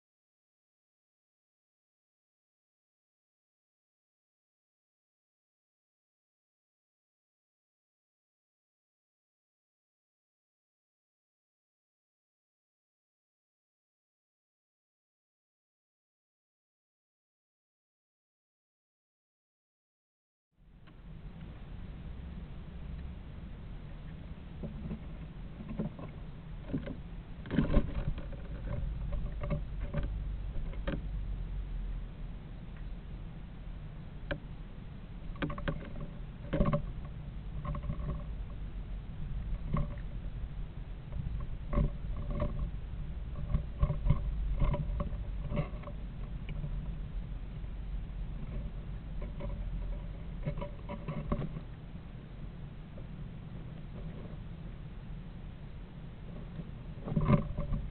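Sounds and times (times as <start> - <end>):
low steady hum: 20.6 - 57.9
steady low rumble: 20.6 - 57.9
claws scratching on nest box: 24.6 - 31.1, 48.2 - 51.8, 56.2 - 57.9
squirrel claws scrabbling: 24.6 - 31.1, 35.2 - 38.6, 41.1 - 47.0, 56.3 - 57.9.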